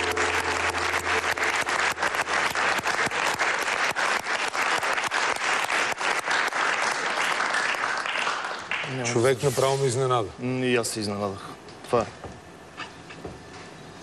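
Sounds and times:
music sting: 0.0 - 3.9
audience applauding: 0.0 - 9.2.

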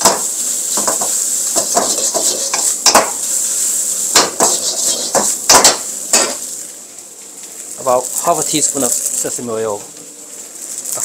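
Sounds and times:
ladle scraping and clanking wok: 0.0 - 6.4
food sizzling: 0.0 - 11.0.

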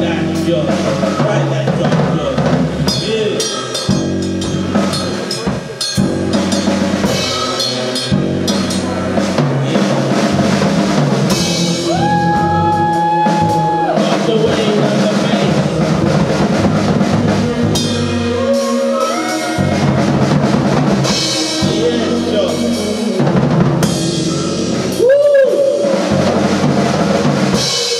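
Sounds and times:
low electric bass notes: 0.0 - 27.8
drum kit playing: 0.0 - 27.9
steady held tone: 2.7 - 10.1.

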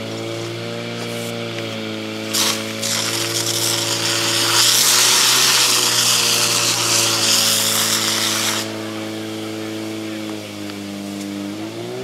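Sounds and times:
pump engine droning: 0.0 - 12.0
fire hose water jets hissing: 2.2 - 10.1.

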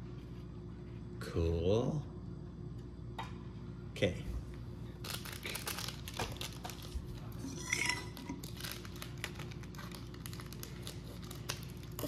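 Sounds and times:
kitchen items clinking: 5.5 - 8.8.

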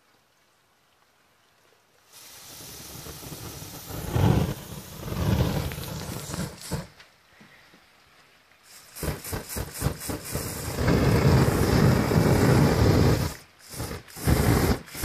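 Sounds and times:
burning paper whooshing: 2.2 - 7.1, 8.6 - 15.0.

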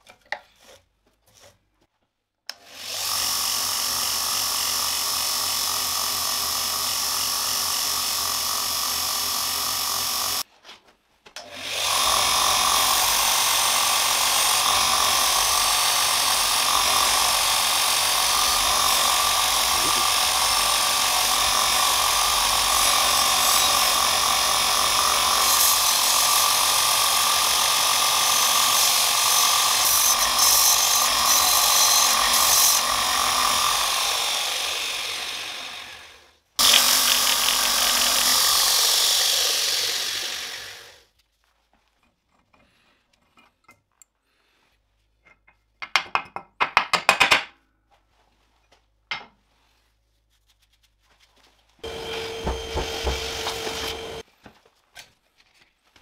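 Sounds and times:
belt grinder running: 2.6 - 10.4, 11.4 - 41.0, 51.8 - 54.2
steel grinding on abrasive belt: 11.9 - 35.6, 36.6 - 41.0, 51.8 - 54.2.

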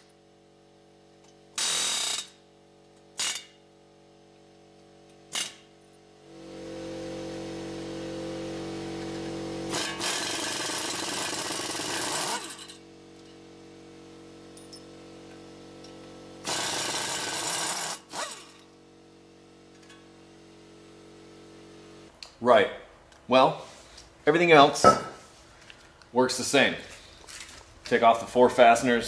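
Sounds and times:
pneumatic air hammer hammering metal: 1.3 - 2.4, 3.0 - 3.6, 5.1 - 5.8, 9.7 - 13.3, 16.4 - 18.7.

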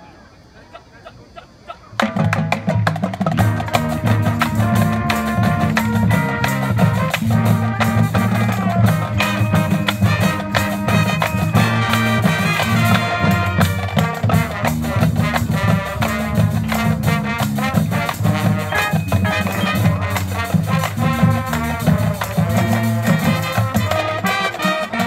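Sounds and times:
marching band playing: 2.0 - 25.0.

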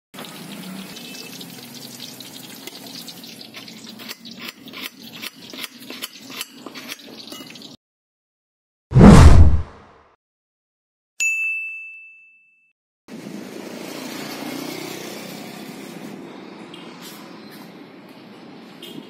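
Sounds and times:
knife scraping and tapping on plate: 3.6 - 7.7.

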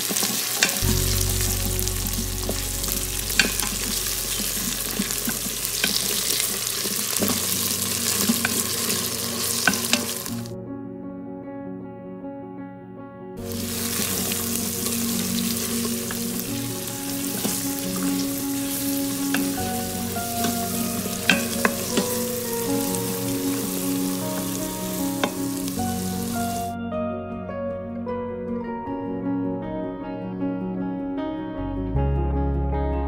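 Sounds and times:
onions sizzling in hot oil: 0.0 - 10.5, 13.4 - 26.7
soft guitar music: 0.0 - 33.0.

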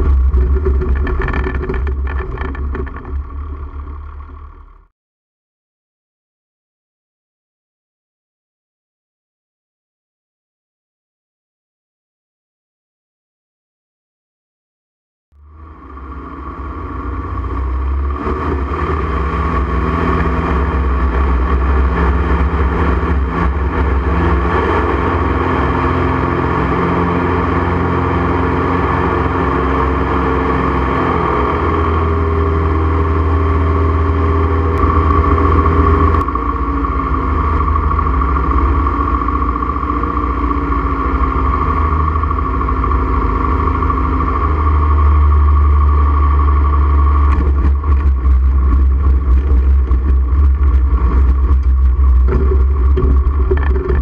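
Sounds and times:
light aircraft engine and propeller: 15.4 - 54.0.

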